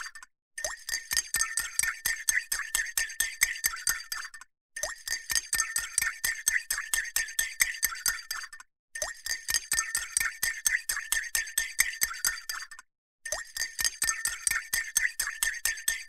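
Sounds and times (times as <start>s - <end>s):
teaspoon clinking in ceramic cup: 13.3s - 16.0s.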